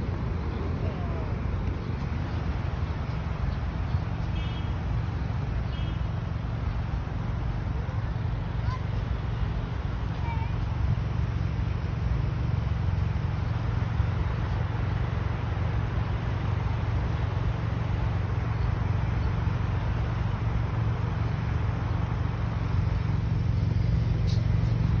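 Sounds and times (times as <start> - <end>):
city street traffic rumble: 0.0 - 25.0.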